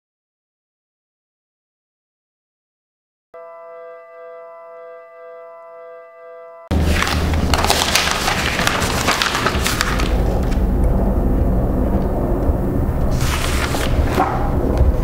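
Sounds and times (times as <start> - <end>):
keyboard chord: 3.4 - 6.8
crackling rustling noise: 6.7 - 10.9, 11.9 - 15.0
deep rumble: 6.7 - 15.0.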